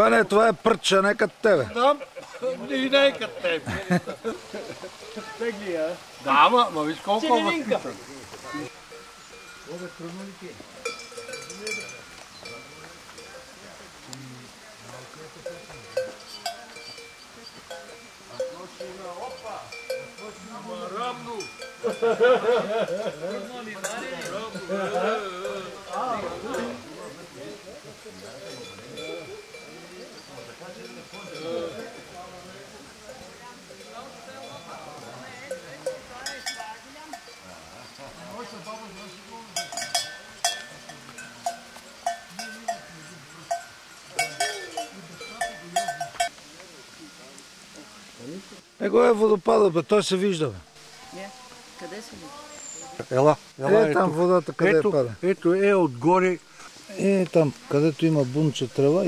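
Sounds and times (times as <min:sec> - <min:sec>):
goat bell clanking: 0:08.5 - 0:13.7, 0:15.1 - 0:46.4.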